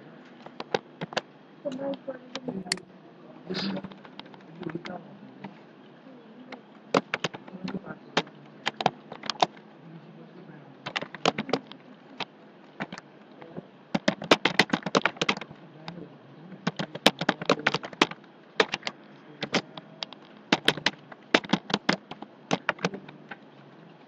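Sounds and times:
typing on computer keyboard: 0:06.9 - 0:09.6, 0:10.8 - 0:13.0, 0:13.9 - 0:15.6, 0:16.6 - 0:23.4.

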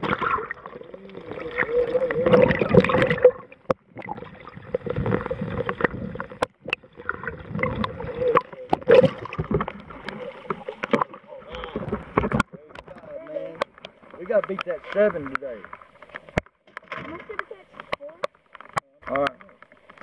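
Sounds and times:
muffled underwater gurgling: 0:00.0 - 0:15.4.

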